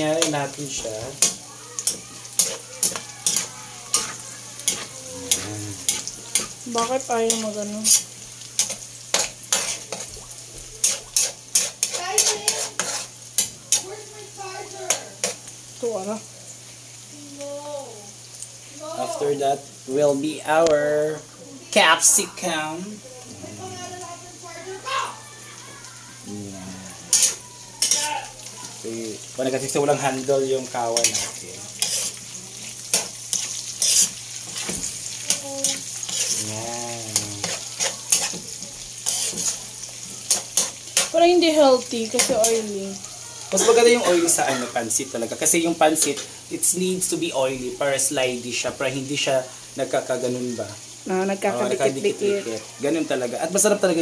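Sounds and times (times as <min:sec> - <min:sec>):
food sizzling in oil: 0:00.0 - 0:54.0
metal spatula scraping a wok: 0:00.2 - 0:10.1, 0:10.8 - 0:13.8, 0:27.1 - 0:28.1, 0:30.9 - 0:32.2, 0:32.9 - 0:34.8, 0:35.6 - 0:36.4, 0:37.2 - 0:39.6, 0:40.3 - 0:41.2.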